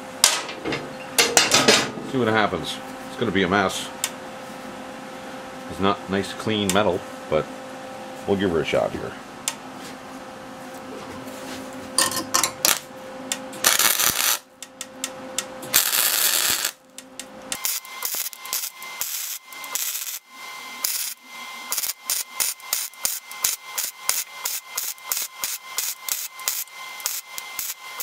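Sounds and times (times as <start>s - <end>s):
welding arc crackle: 12.6s - 12.9s, 13.6s - 14.5s, 15.6s - 28.0s.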